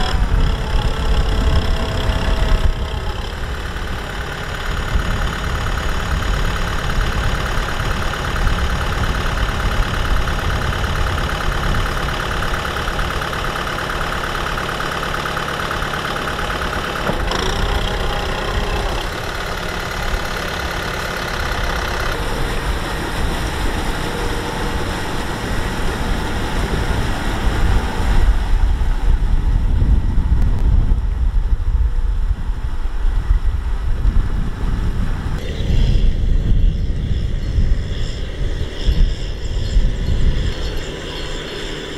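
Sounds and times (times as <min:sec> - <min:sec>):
tractor diesel engine idling: 0:00.0 - 0:29.9.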